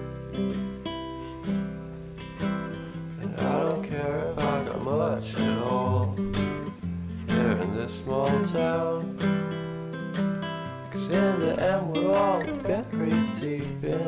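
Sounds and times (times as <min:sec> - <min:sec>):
acoustic guitar strumming: 0:00.0 - 0:14.0
person singing: 0:03.2 - 0:06.7, 0:07.3 - 0:09.5, 0:10.9 - 0:14.0.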